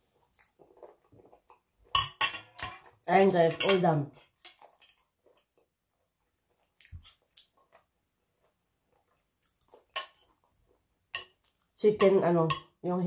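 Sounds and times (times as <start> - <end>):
faint chewing mouth clicks: 6.5 - 10.6.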